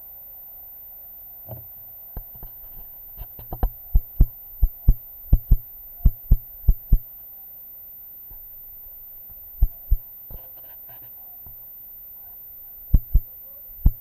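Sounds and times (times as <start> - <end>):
low sharp handling thumps: 13.0 - 13.2.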